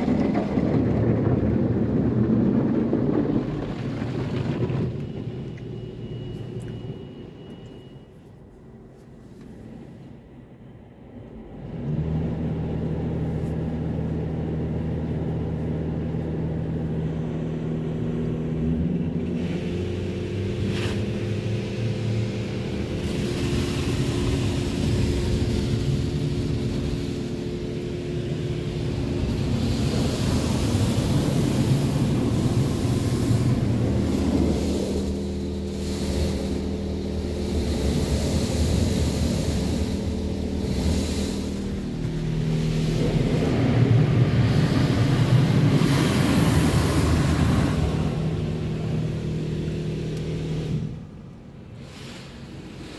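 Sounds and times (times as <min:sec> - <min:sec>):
car wash pumps and motors humming: 0:00.0 - 0:52.9
water jets hissing on car: 0:19.2 - 0:52.9.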